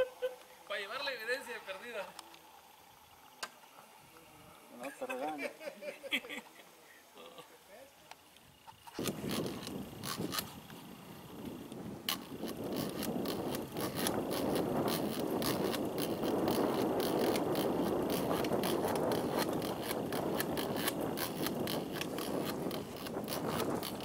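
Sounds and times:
fishing reel whirring and clicking: 8.6s - 24.0s.

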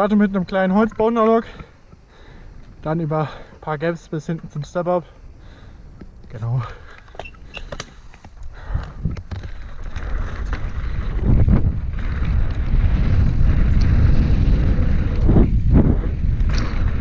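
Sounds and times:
tyres rumbling on dirt trail: 0.0s - 17.0s
bike thumping over bumps: 7.1s - 17.0s
wind buffeting microphone: 8.3s - 17.0s.

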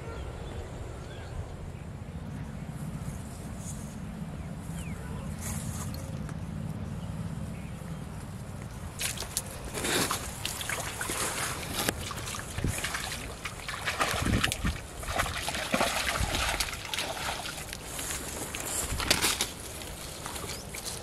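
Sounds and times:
fish splashing in water: 9.0s - 21.0s.

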